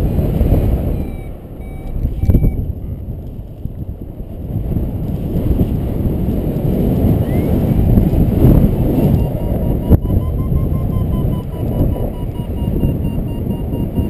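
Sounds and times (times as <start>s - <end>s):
wind rushing over microphone: 0.0s - 14.0s
faint high beeps: 0.9s - 2.6s, 9.2s - 14.0s.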